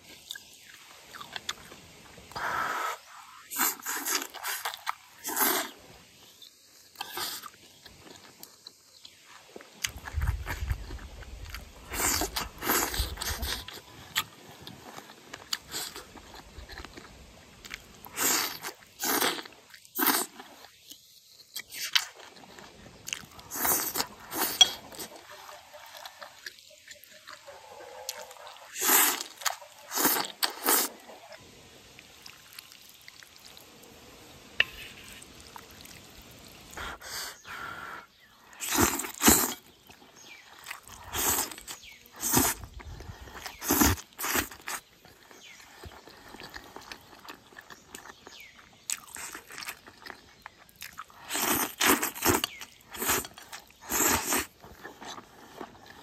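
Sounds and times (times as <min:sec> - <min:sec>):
noodles slurped: 0:02.3 - 0:05.8, 0:11.8 - 0:13.7, 0:17.7 - 0:20.6, 0:28.1 - 0:31.0, 0:38.5 - 0:39.7, 0:40.6 - 0:44.8, 0:50.9 - 0:56.0
person chewing and smacking: 0:06.4 - 0:27.5, 0:38.6 - 0:56.0.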